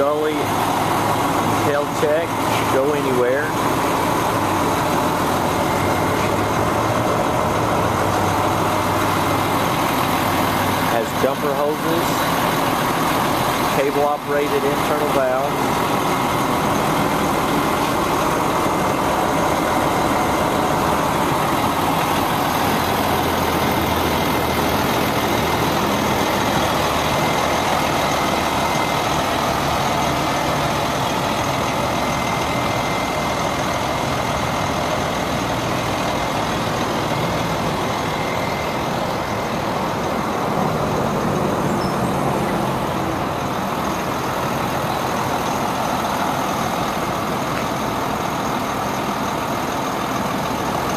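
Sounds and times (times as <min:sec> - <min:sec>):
diesel truck engine idling: 0:00.0 - 0:50.9.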